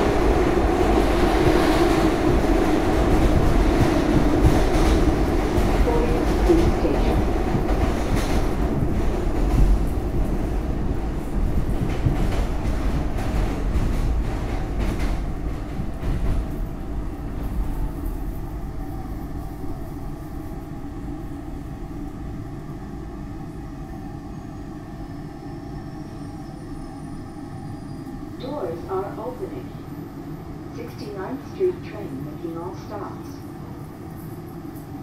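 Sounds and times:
train wheels rumbling over rails: 0.0 - 27.5.

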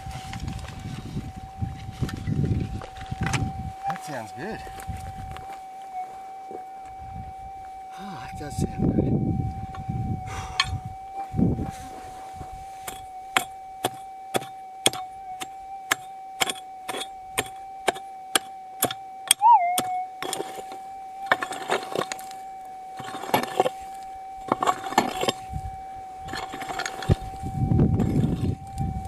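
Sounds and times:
metal detector hum: 9.3 - 29.0
digging and scraping dirt: 10.4 - 28.9
pick striking stony ground: 12.8 - 22.4, 24.4 - 25.4
metal detector warble: 19.2 - 22.4, 23.0 - 29.0.

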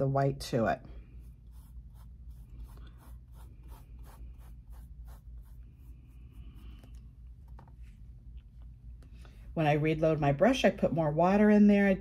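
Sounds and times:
steady low hum: 0.0 - 12.0
paintbrush strokes: 1.0 - 8.1.

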